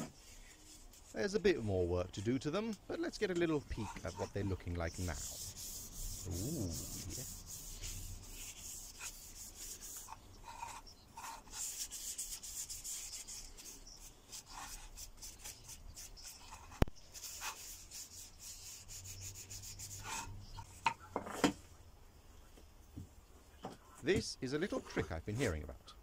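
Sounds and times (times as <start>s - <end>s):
paper towel wiping wood: 0.0s - 2.7s, 3.5s - 20.6s.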